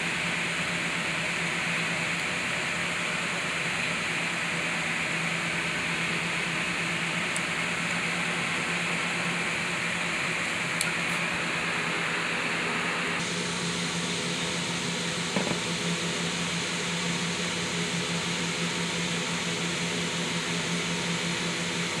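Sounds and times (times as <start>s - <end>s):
brief knock: 15.3s - 15.6s.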